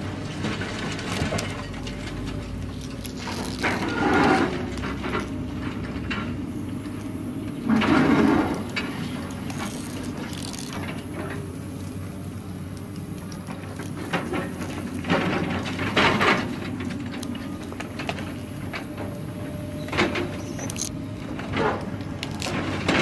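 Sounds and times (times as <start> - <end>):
cardboard crackling and crunching: 0.0 - 19.2, 20.0 - 23.0.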